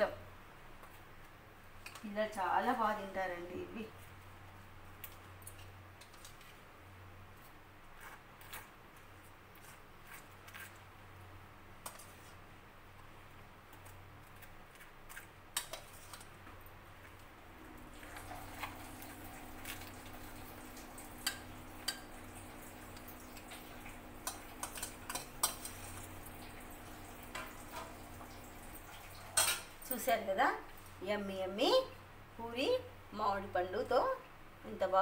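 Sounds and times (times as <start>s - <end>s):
low steady hum: 0.0s - 35.0s
metal spoon clinking on bowls: 29.4s - 30.0s.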